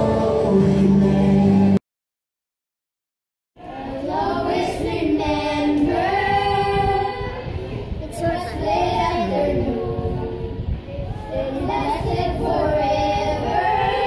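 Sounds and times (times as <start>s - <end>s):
children singing unaccompanied: 3.6s - 14.0s.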